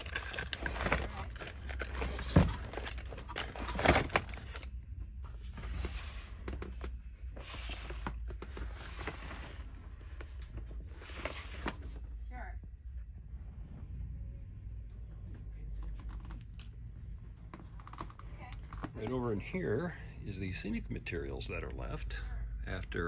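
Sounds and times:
crinkling of plastic packaging: 0:00.0 - 0:04.7.

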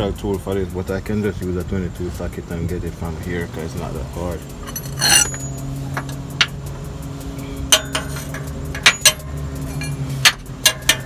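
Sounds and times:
steady low hum: 0:01.8 - 0:10.8
wrench clinking on metal: 0:04.6 - 0:06.6, 0:07.7 - 0:11.0.

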